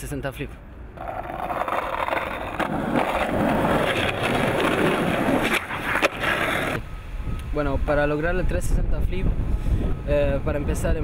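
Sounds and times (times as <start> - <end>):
skateboard tail clack: 1.0 - 6.8
skateboard wheels rolling on asphalt: 1.0 - 6.8.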